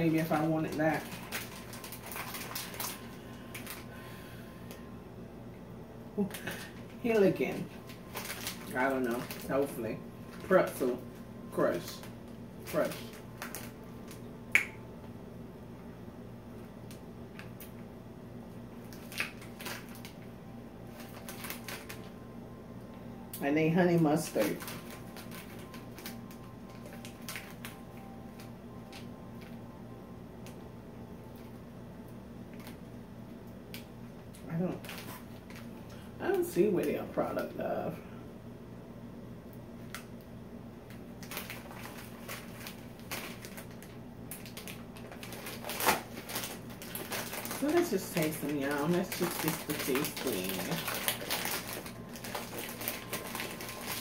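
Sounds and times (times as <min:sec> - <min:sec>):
plastic snack bag crinkling: 0:00.0 - 0:04.1, 0:06.2 - 0:14.3, 0:18.7 - 0:22.2, 0:23.7 - 0:29.6, 0:32.5 - 0:32.9, 0:33.8 - 0:37.5, 0:40.9 - 0:54.0
steady low hum: 0:00.0 - 0:54.0.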